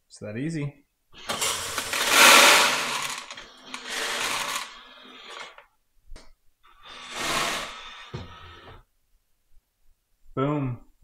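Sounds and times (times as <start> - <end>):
soybeans rattling into a hopper: 1.2 - 5.6.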